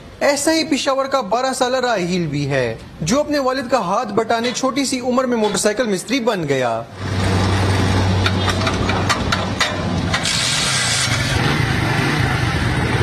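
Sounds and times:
motorcycle engine idling and revving: 6.9 - 13.0.

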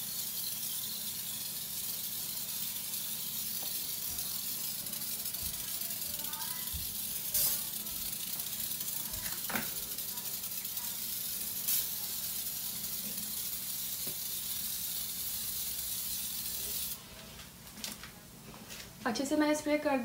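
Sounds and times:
aerosol can spraying hiss: 1.4 - 17.0.

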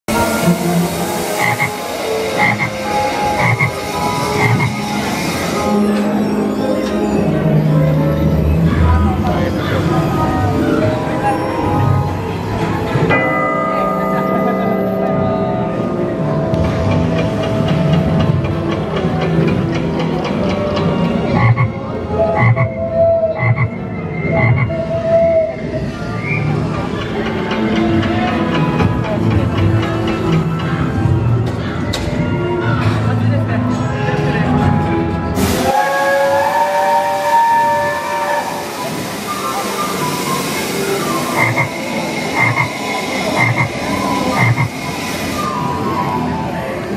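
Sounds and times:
recorded frog croaks: 1.4 - 1.8, 2.4 - 2.8, 3.4 - 3.8, 4.4 - 4.8, 21.4 - 21.8, 22.4 - 22.8, 23.4 - 23.8, 24.4 - 24.7, 41.4 - 41.7, 43.4 - 43.8, 44.4 - 44.8.

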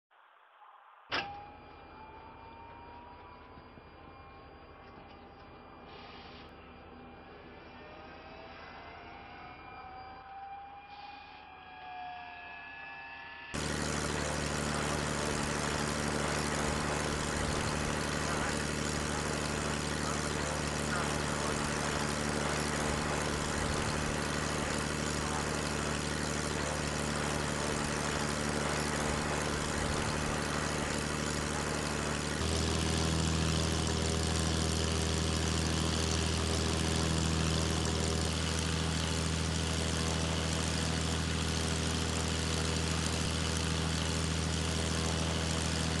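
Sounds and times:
engine idling: 13.6 - 46.0.

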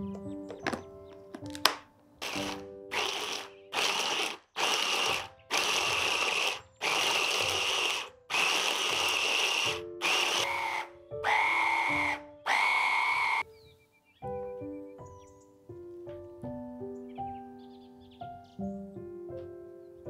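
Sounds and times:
background music: 0.0 - 20.0
electric food chopper: 2.2 - 13.4.

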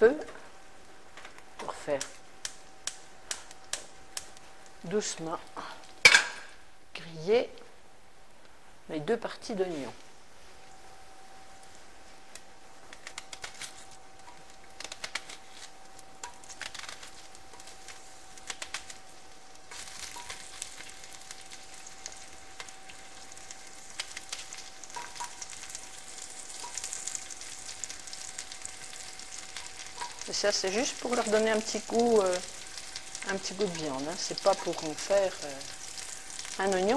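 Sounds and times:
oil sizzling: 10.1 - 36.9.

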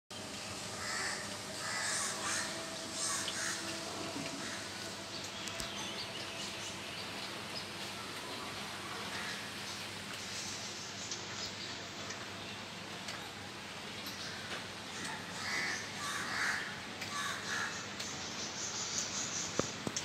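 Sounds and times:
rain falling on trees and street: 0.1 - 20.0
crow cawing: 0.8 - 3.7, 15.0 - 17.8.

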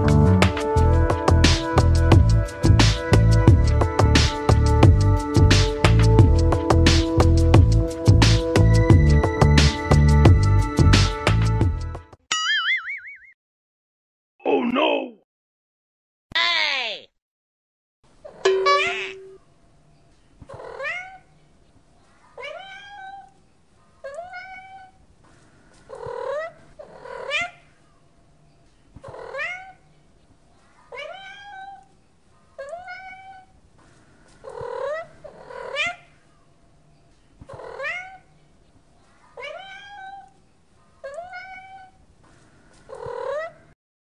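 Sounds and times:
cat meowing: 22.4 - 23.3, 24.0 - 25.0, 30.9 - 31.9, 32.6 - 33.5, 37.5 - 38.2, 39.4 - 40.3, 41.0 - 42.0.

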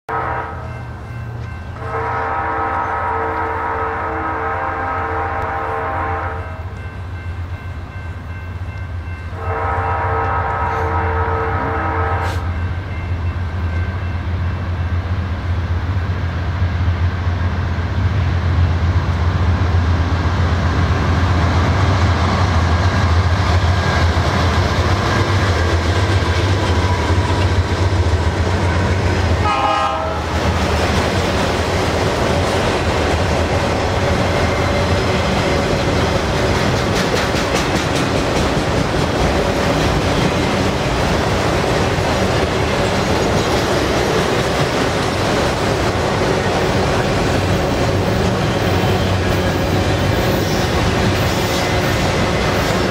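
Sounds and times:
diesel locomotive engine drone: 0.1 - 52.9
freight cars wheels on rails: 20.6 - 29.6, 30.2 - 52.9
clicking over rail joints: 34.7 - 40.4.

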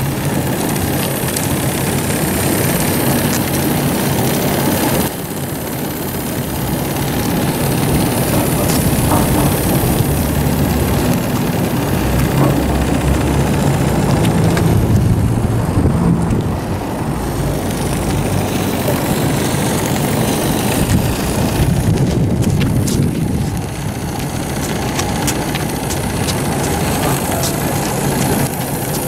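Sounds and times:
small steam engine exhaust beat: 0.0 - 29.0
sharp ticks: 17.2 - 29.0.

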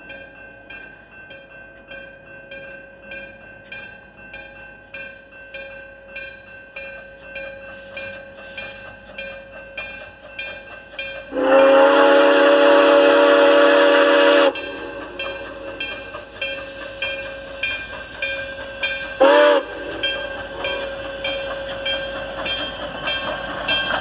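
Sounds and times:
locomotive bell ringing: 0.0 - 24.0
steam whistle blast: 11.3 - 15.0, 19.2 - 20.0.

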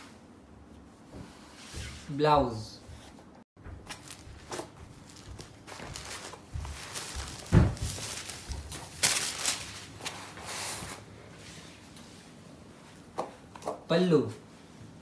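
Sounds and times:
cloth rustling: 3.8 - 11.8
loud thump: 7.5 - 7.9.

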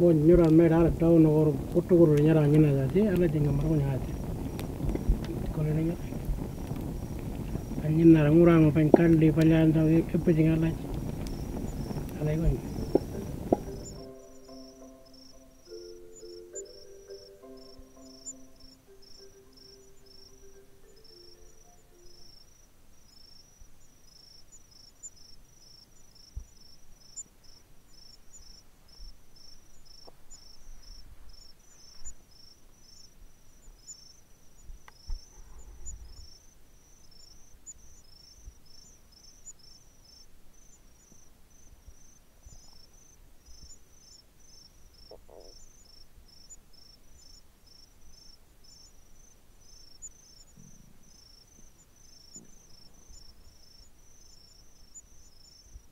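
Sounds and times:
faint low thumps and rumbles: 0.0 - 22.5
crickets chirping: 0.0 - 55.9.

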